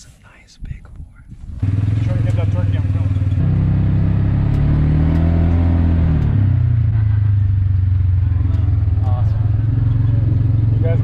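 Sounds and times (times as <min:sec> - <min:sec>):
vehicle engine running: 0:01.5 - 0:11.0.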